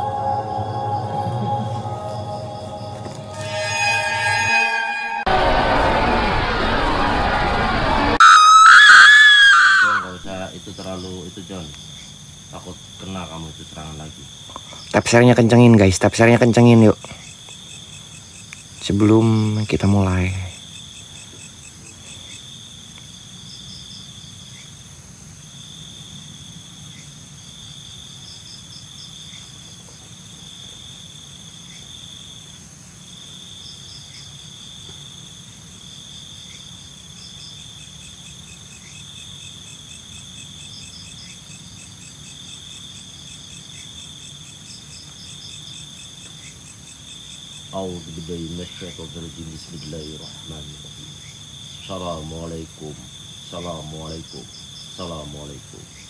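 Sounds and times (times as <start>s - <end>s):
crickets trilling: 0.0s - 5.2s, 8.2s - 56.0s
pulsing insect chirps: 0.0s - 6.7s, 8.2s - 22.8s
low rumble: 0.0s - 8.2s.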